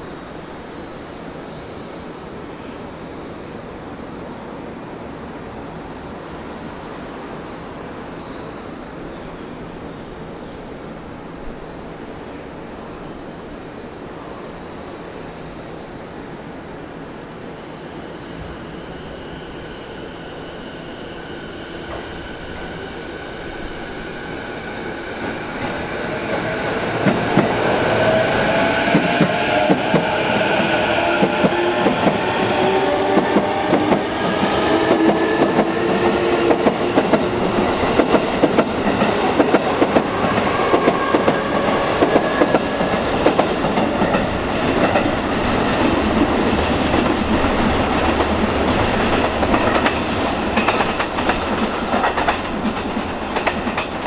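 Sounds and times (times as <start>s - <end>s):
train wheels clattering over rail joints: 36.4s - 54.0s.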